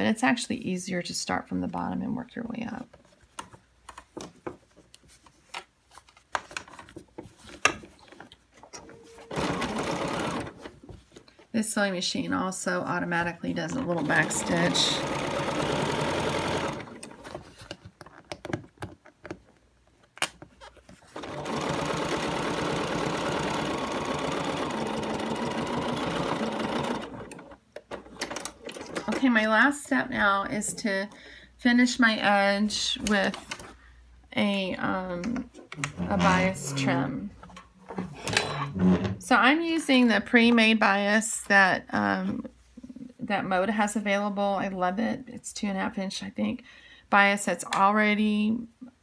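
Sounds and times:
sewing machine stitching: 8.9 - 10.7, 13.7 - 17.3, 21.1 - 29.3.

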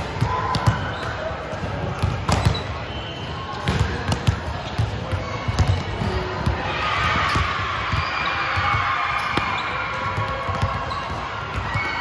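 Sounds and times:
basketball dribbling on court: 1.9 - 2.6, 3.6 - 6.6, 7.2 - 12.0.

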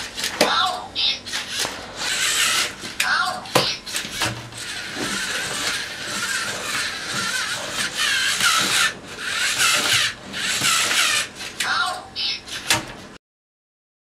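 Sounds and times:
plastic gears and legs clattering: 1.3 - 11.7
servo motors whirring: 1.3 - 11.9.

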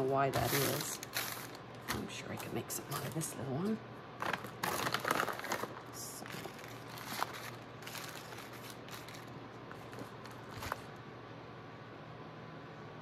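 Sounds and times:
packing paper rustling: 0.0 - 3.4, 4.2 - 10.9.

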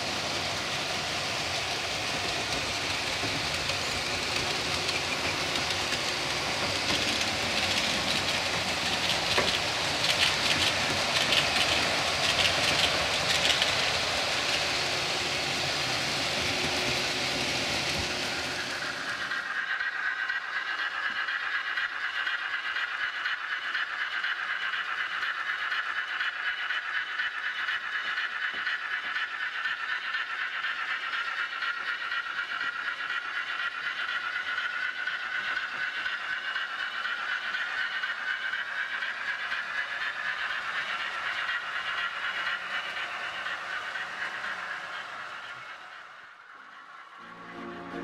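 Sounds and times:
wheels rattling on track: 0.0 - 47.2
model train motors whining: 0.0 - 48.0.

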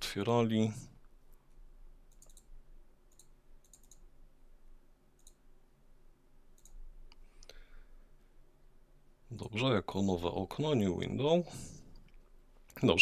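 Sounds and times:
faint low hum: 0.0 - 13.0
computer mouse clicks: 2.1 - 4.1, 5.2 - 5.4, 6.5 - 7.5.

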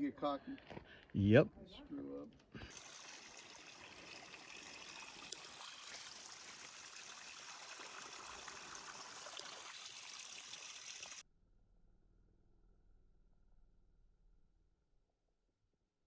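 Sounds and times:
stream trickling over rocks: 2.6 - 11.2.

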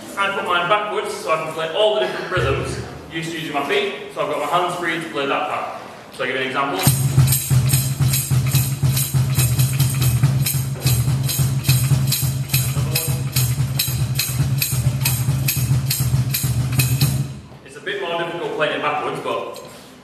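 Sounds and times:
low rumble: 2.4 - 3.1
kick pedal beating a cajon: 6.8 - 17.6
tambourine jingling: 6.9 - 17.4.

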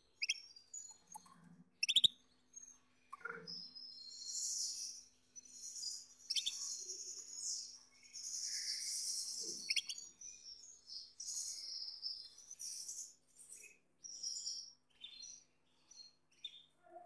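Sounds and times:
canary singing: 1.8 - 2.2, 6.0 - 6.8, 8.9 - 10.2.

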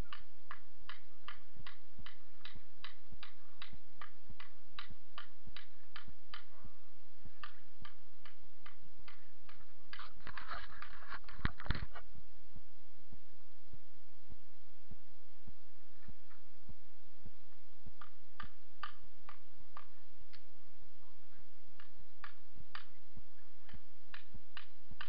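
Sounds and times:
regular ticking: 0.0 - 6.5, 7.3 - 11.0, 18.0 - 20.5, 21.7 - 23.0, 23.6 - 25.0
rustling: 9.1 - 12.2.

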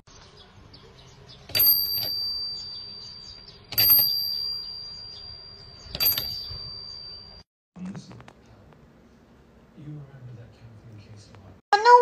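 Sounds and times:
small brass bell ringing: 1.6 - 7.4.

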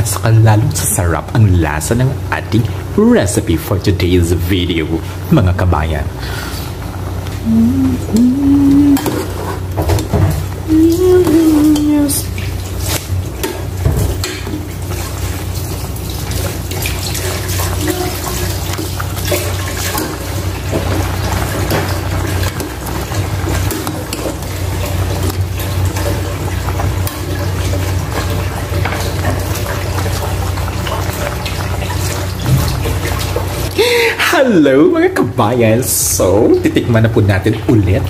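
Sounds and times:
stew bubbling in a pot: 0.0 - 38.0.

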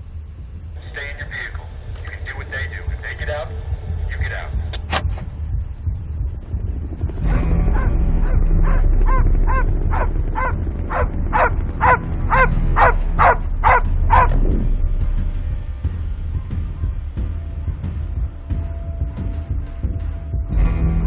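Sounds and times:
low steady rumble: 0.0 - 21.0
large dog barking: 7.3 - 14.4.

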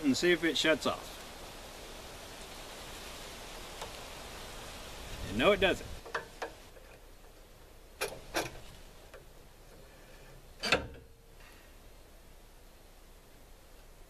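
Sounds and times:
light clicks and knocks by hand: 6.0 - 7.4.

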